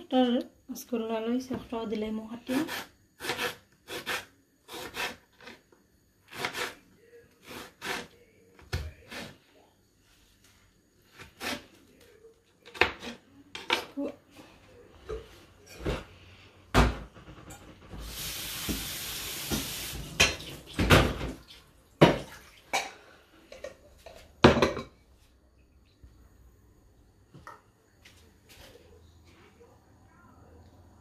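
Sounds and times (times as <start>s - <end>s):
knife cutting on wooden board: 2.6s - 5.6s, 6.3s - 6.8s, 7.4s - 8.1s
steady hiss: 17.9s - 20.6s.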